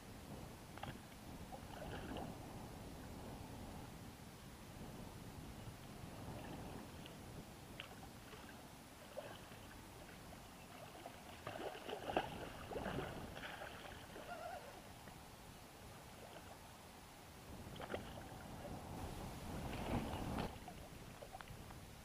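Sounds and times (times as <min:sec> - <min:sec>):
faint water lapping: 0:00.8 - 0:02.7, 0:05.9 - 0:16.8, 0:17.5 - 0:21.8.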